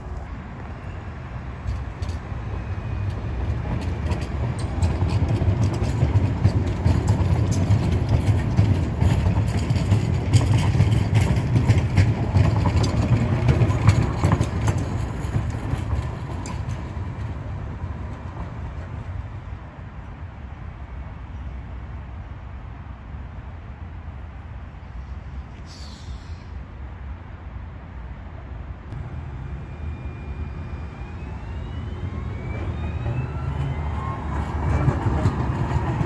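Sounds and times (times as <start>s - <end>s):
tram rumbling past on rails: 0.0s - 36.0s
wheel clicks on rails: 3.0s - 17.4s.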